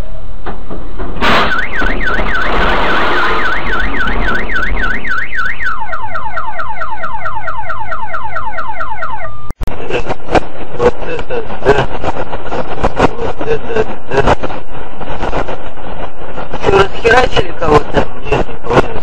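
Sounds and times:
car alarm whooping and chirping: 1.3s - 9.6s.

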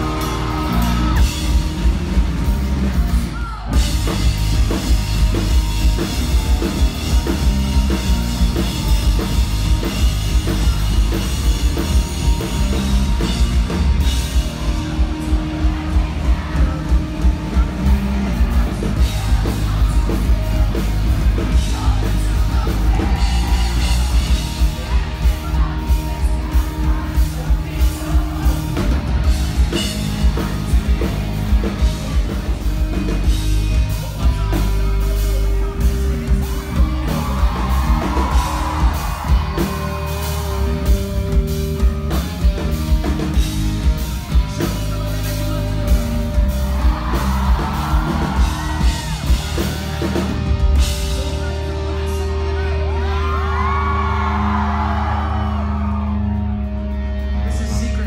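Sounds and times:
live rock band playing: 0.0s - 58.0s.

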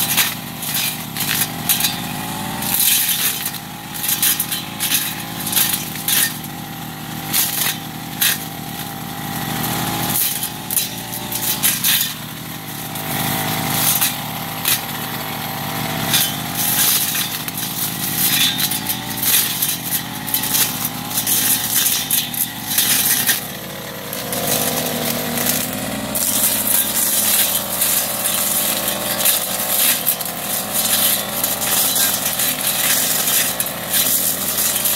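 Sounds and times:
blade crackling through undergrowth: 0.0s - 34.9s
brush cutter engine running: 0.0s - 34.9s.

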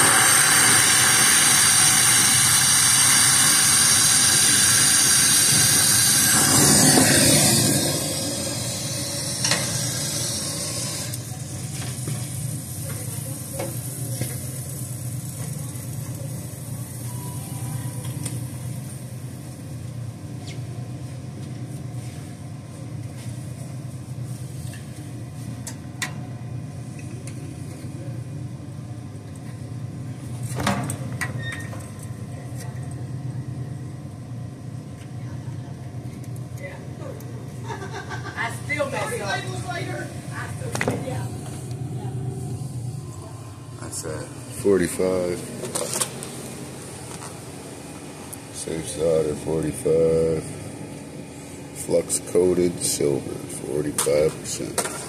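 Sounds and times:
torch flame hissing: 0.0s - 17.1s.

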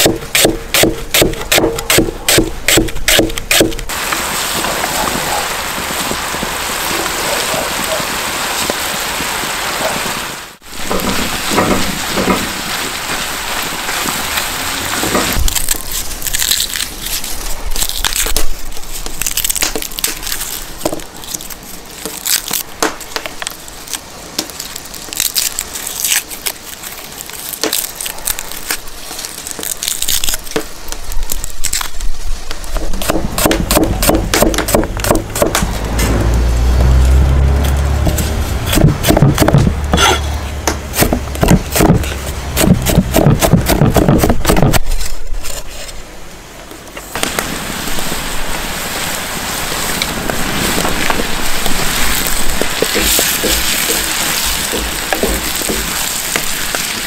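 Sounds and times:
cleaver chopping on board: 0.0s - 3.8s, 33.0s - 35.7s, 38.7s - 44.8s, 52.8s - 56.5s
onions sizzling in pan: 3.5s - 16.3s, 47.0s - 57.0s.

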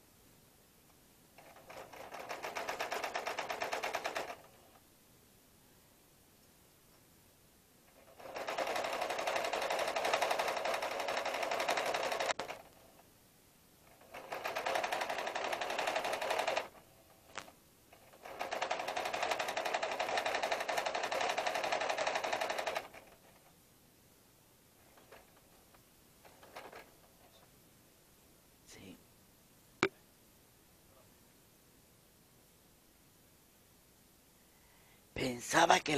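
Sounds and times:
sewing machine stitching: 1.4s - 4.8s, 7.9s - 13.0s, 13.8s - 23.5s, 24.8s - 27.4s.

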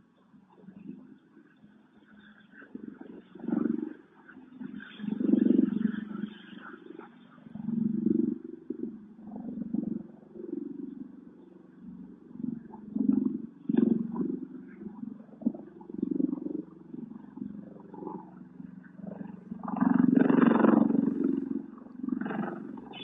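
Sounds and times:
distant aircraft rotors growling: 12.5s - 23.0s.

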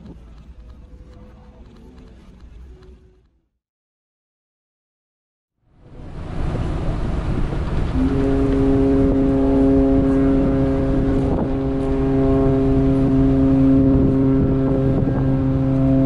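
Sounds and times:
low rumble: 5.7s - 16.0s
ship's horn blast: 5.8s - 16.0s.

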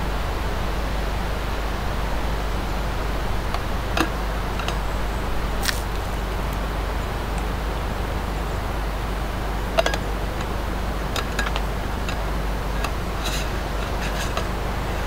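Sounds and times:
rain hiss: 0.0s - 11.1s.

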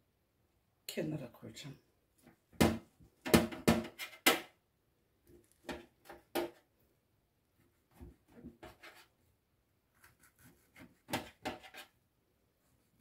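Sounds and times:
knife chopping on metal tray: 10.0s - 11.9s.

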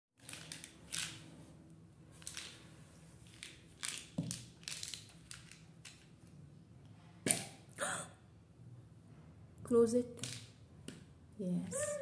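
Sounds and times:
plastic packaging rustling and clacking: 0.2s - 1.4s, 2.1s - 6.2s.

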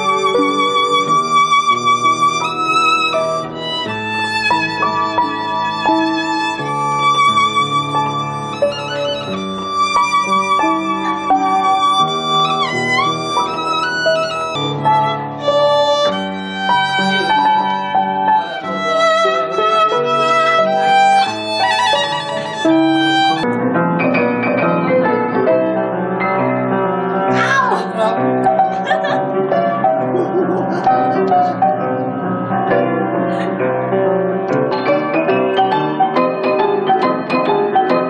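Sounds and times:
solo violin melody: 0.0s - 23.5s
piano four hands: 0.0s - 38.0s.

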